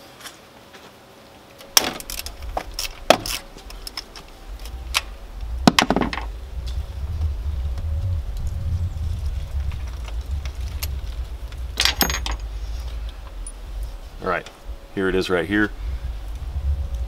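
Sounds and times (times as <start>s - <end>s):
low rumble: 2.0s - 17.0s
metallic ratchet clinks and rattles: 11.8s - 12.5s.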